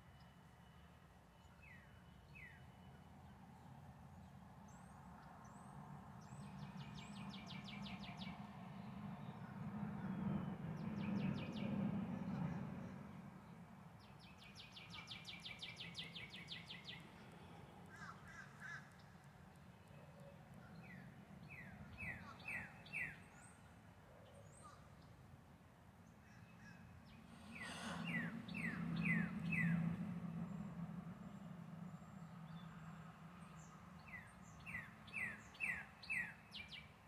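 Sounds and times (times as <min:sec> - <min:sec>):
songbirds chirping: 0:00.0 - 0:37.0
road traffic rumble: 0:27.1 - 0:35.5.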